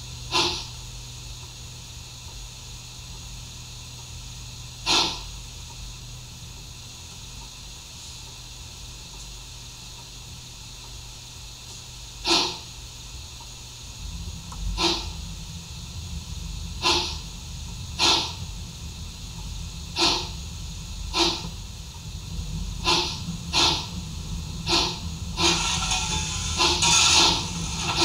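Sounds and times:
hissing steam chuffs: 0.0 - 3.8, 4.7 - 5.5, 12.1 - 28.0
low rumble: 13.9 - 28.0.

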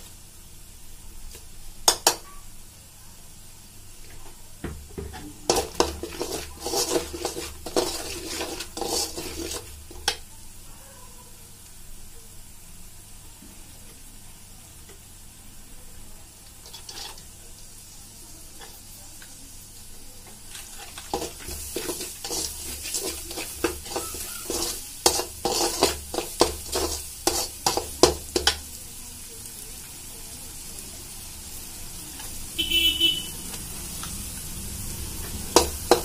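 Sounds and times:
spices sizzling in a pan: 0.0 - 36.0
ladle scraping and knocking pan: 5.0 - 10.2, 20.5 - 28.6, 35.5 - 36.0.

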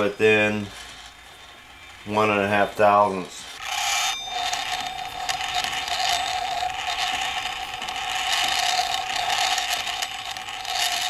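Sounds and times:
rushing scraping noise: 3.4 - 11.0
metal lathe whining: 3.6 - 11.0.

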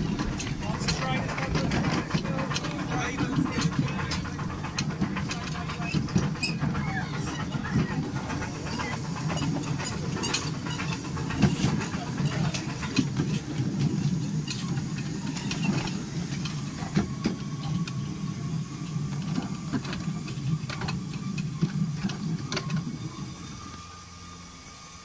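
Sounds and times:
sharp clicks and knocks: 0.0 - 18.0
train wheels rumbling on track: 0.0 - 25.0.

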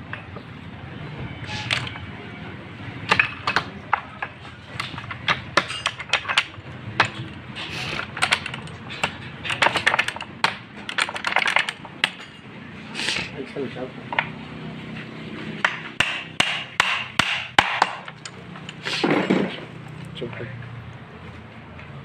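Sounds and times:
hand tools clicking on metal: 1.5 - 2.0, 3.1 - 12.4, 16.4 - 19.2.

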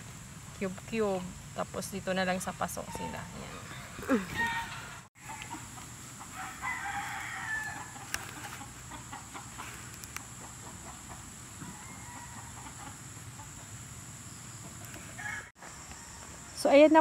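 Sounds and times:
chickens clucking: 2.7 - 6.4, 7.6 - 15.5
rooster crowing: 2.9 - 5.6, 6.2 - 8.2, 11.6 - 13.0, 15.1 - 16.4.

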